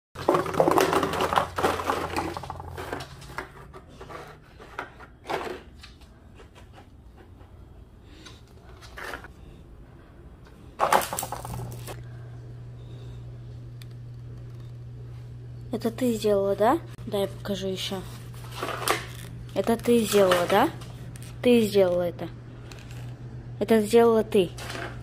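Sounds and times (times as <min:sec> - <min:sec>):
dog crushing plastic bottles: 0:00.2 - 0:06.0, 0:10.8 - 0:12.0
low hum: 0:07.2 - 0:23.7.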